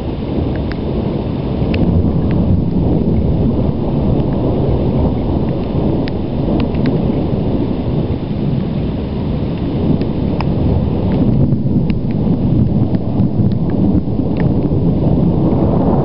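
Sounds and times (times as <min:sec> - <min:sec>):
rumbling thunder: 0:00.0 - 0:16.0
faint sharp clicks: 0:05.5 - 0:07.0.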